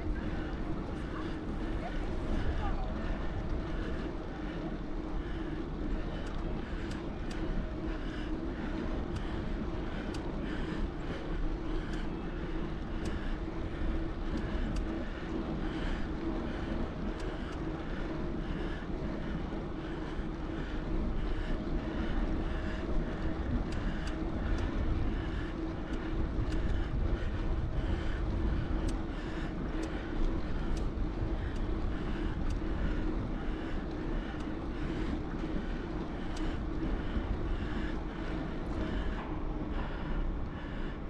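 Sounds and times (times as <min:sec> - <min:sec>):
bicycle tyres humming: 0:00.0 - 0:41.0
light ticks and rattles: 0:00.0 - 0:41.0.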